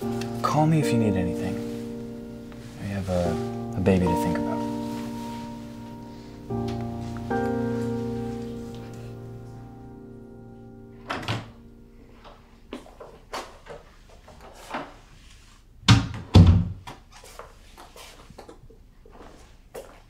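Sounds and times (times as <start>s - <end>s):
door closing thuds: 11.1s - 11.6s, 15.9s - 16.8s.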